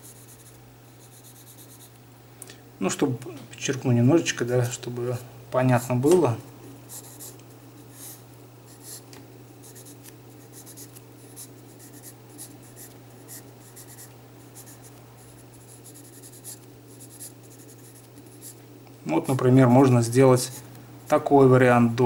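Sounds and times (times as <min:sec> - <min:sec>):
pencil scratching on paper: 0:00.0 - 0:01.9, 0:06.9 - 0:09.0, 0:09.6 - 0:18.6, 0:20.4 - 0:20.6.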